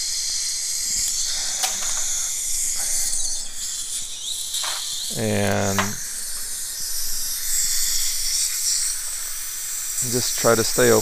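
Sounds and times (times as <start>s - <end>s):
dental suction hiss: 0.0s - 11.0s.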